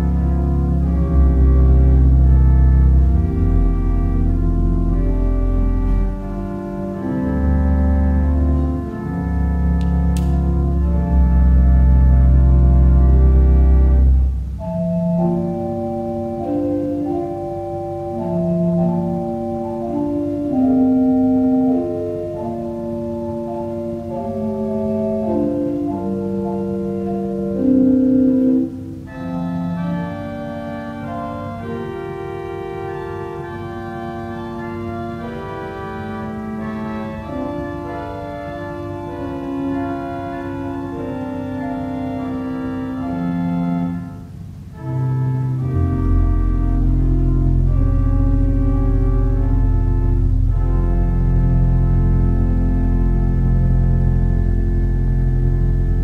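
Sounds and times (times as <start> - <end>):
church organ playing chords: 0.0 - 56.0.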